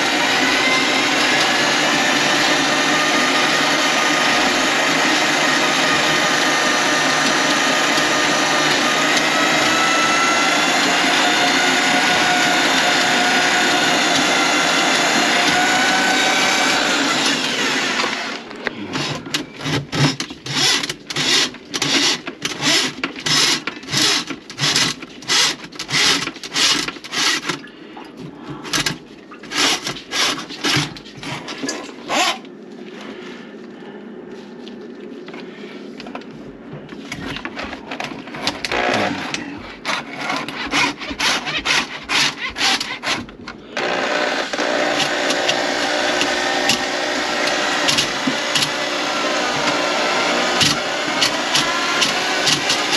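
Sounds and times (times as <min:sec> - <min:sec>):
electric motor whining: 0:43.8 - 0:52.9.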